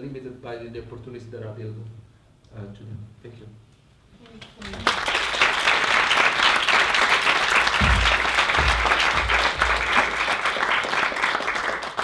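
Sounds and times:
audience applauding: 0:04.5 - 0:12.0
low thuds: 0:07.8 - 0:10.0.

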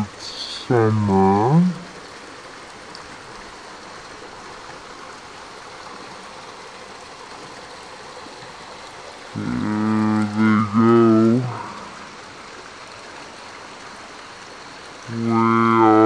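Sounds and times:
person humming: 0:00.0 - 0:01.8, 0:09.4 - 0:12.1, 0:15.1 - 0:16.0
waterfall trickling over rocks: 0:00.0 - 0:16.0.

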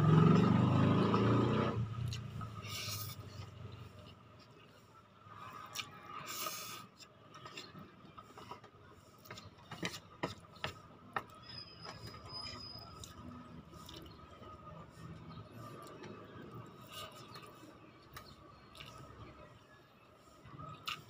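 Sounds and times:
chewing: 0:05.6 - 0:08.6, 0:12.9 - 0:14.6, 0:15.7 - 0:19.3, 0:20.6 - 0:21.0.

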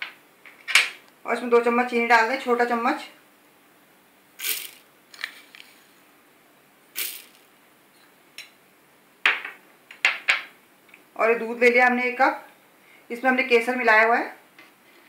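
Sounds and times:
sugar grains hitting plastic jar: 0:07.0 - 0:07.4.

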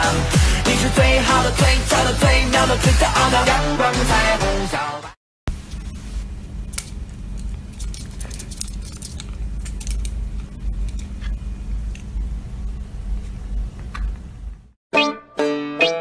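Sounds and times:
steady low hum: 0:05.5 - 0:14.8.

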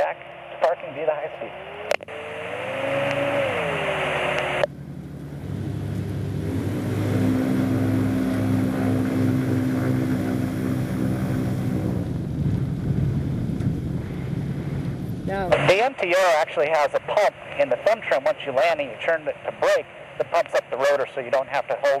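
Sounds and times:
radio hiss with whine: 0:00.0 - 0:04.7, 0:15.3 - 0:22.0
aircraft engine running steadily: 0:00.0 - 0:22.0.

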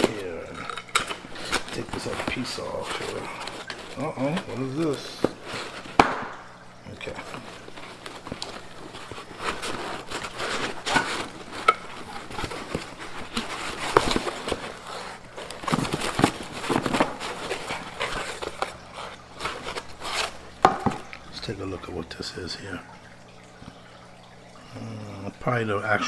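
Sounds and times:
packaging rustling and scraping: 0:00.0 - 0:06.2, 0:06.9 - 0:21.2.

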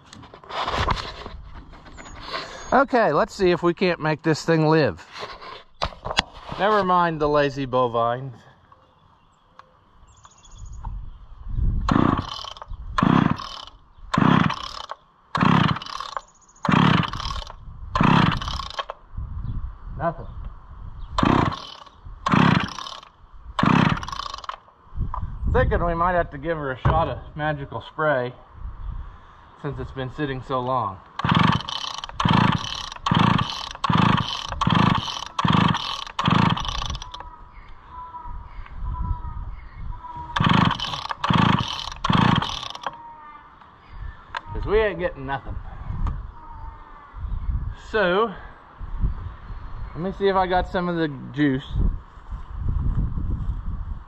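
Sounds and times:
chainsaw engine turning over: 0:11.9 - 0:19.0, 0:21.2 - 0:24.7, 0:31.2 - 0:37.3, 0:40.3 - 0:43.0.

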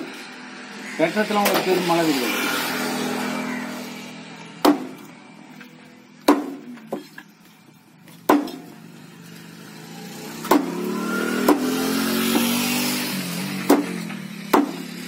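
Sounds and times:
passing vehicle engine: 0:00.0 - 0:06.1, 0:08.6 - 0:15.0
cleaver chopping on wooden block: 0:04.6 - 0:05.1, 0:06.2 - 0:07.0, 0:08.3 - 0:08.6, 0:10.4 - 0:10.8, 0:11.4 - 0:11.7, 0:13.7 - 0:14.9.

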